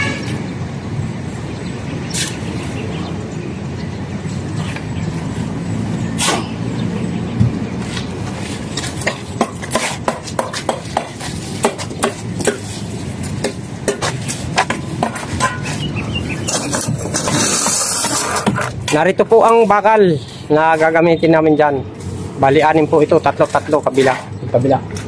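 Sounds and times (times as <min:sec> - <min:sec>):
tools clicking and scraping blocks: 0:16.4 - 0:19.6.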